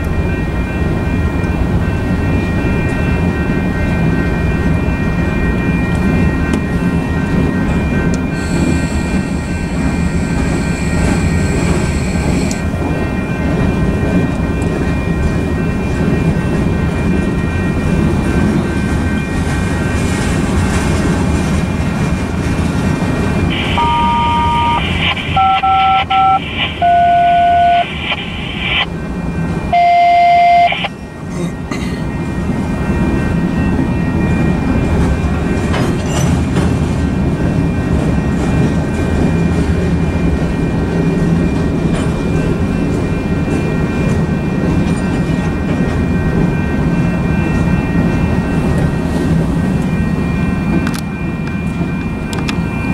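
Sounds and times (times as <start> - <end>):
freight train cars rolling: 0.0 - 52.9
phone keypad tones: 23.5 - 28.9, 29.8 - 30.9.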